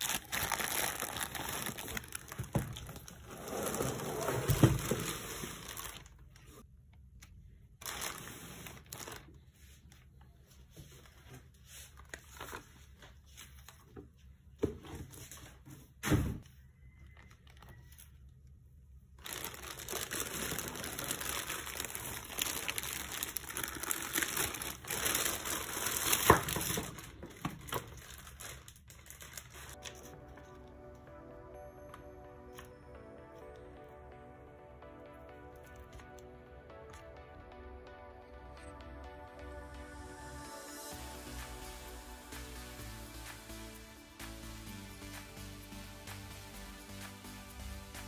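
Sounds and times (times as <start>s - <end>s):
plastic bag crinkling: 0.0s - 6.6s, 7.8s - 9.4s, 19.2s - 30.0s.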